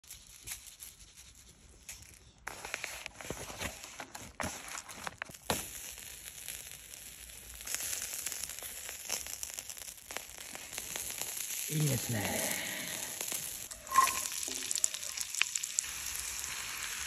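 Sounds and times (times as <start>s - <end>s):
meat patty sizzling on grill: 5.3s - 17.0s
hands squishing raw meat: 12.2s - 16.2s.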